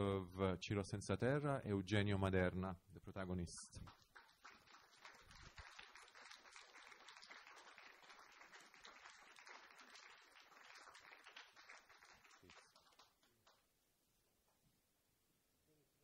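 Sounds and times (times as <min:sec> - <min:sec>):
faint audience applause: 0:03.8 - 0:13.7.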